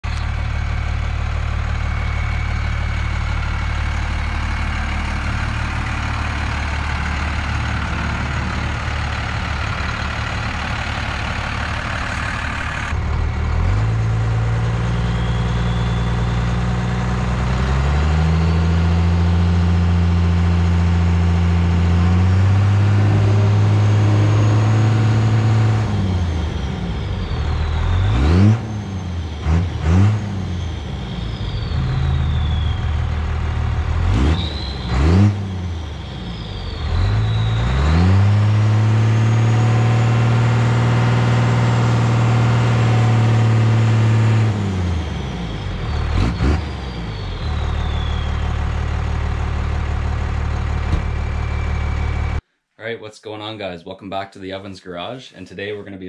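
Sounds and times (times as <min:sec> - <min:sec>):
diesel engine running: 0:00.0 - 0:52.4
turbo whistle: 0:14.8 - 0:16.9, 0:31.0 - 0:33.1, 0:34.2 - 0:35.3, 0:36.0 - 0:38.2, 0:45.2 - 0:49.3, 0:50.7 - 0:52.4.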